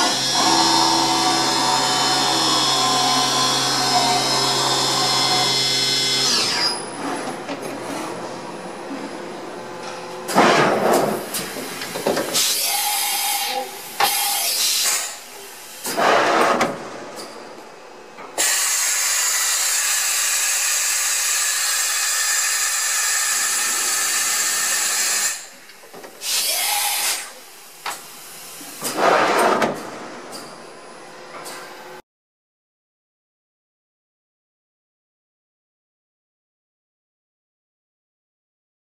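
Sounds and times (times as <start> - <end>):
machine hiss: 10.9 - 16.0, 18.4 - 25.6, 26.2 - 29.0.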